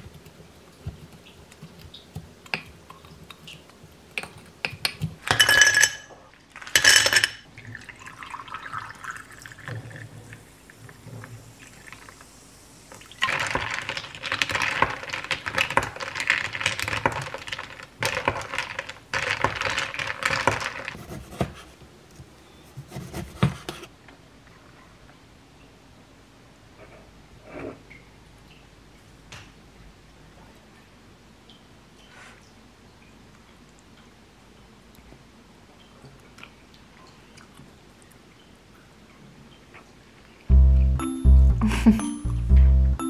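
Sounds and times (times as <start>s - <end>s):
soda water pouring and fizzing: 7.5s - 20.9s.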